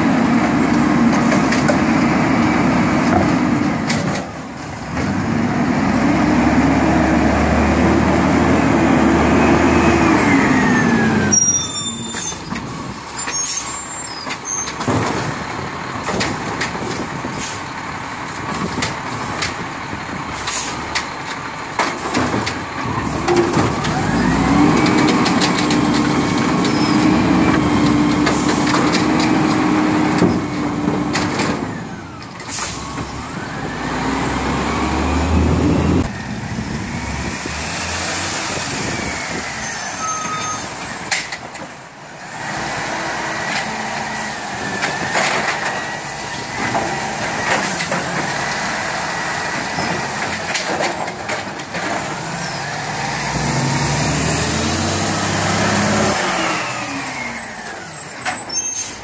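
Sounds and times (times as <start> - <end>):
garbage truck engine revving: 0.0 - 59.0
truck clanks: 0.0 - 59.0.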